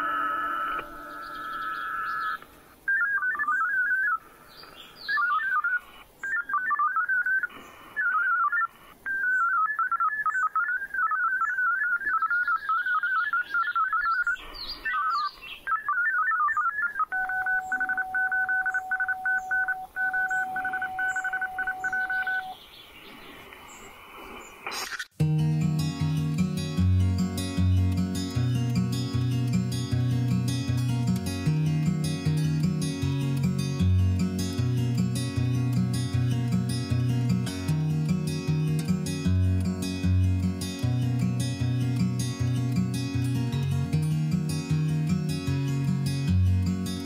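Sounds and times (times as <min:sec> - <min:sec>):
two steady pulsing tones: 0:00.0 - 0:02.4
warbling chirping data modem tones: 0:00.0 - 0:04.1, 0:05.2 - 0:22.6
faint high chirps: 0:05.1 - 0:22.6.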